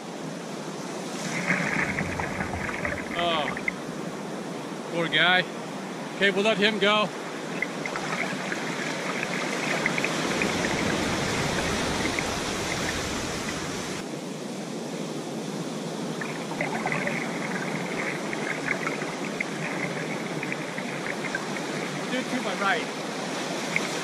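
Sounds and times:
ocean surf rushing: 0:00.8 - 0:24.0
faint crackles: 0:01.2 - 0:03.8, 0:16.2 - 0:22.3.

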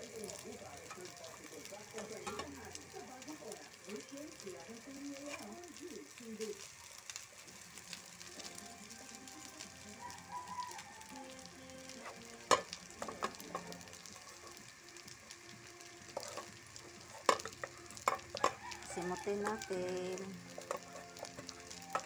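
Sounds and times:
rice sizzling: 0:00.0 - 0:22.0
metal spatula scraping pan: 0:16.1 - 0:18.6, 0:20.5 - 0:22.0.

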